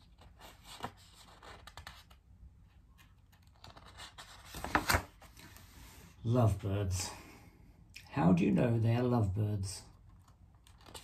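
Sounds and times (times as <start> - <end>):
paper page rustling: 0.0 - 2.2, 3.0 - 5.8, 10.2 - 11.0.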